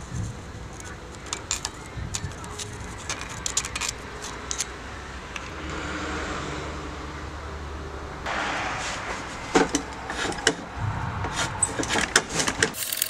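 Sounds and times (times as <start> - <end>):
steady low rumble: 9.0 - 11.6.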